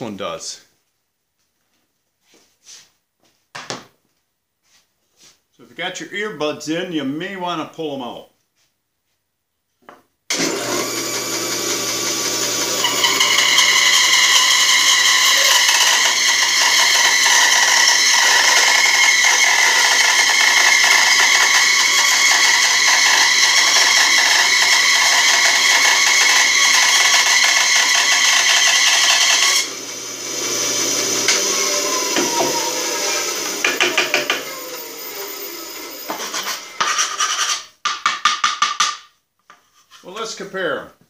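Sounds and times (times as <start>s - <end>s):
bandsaw cutting a board: 10.3s - 37.7s.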